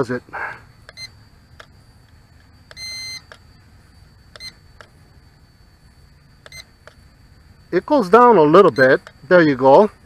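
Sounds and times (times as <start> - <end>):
transmitter beeping: 0.8 - 1.8, 2.6 - 3.4, 4.3 - 4.9, 6.4 - 7.0, 8.6 - 9.2.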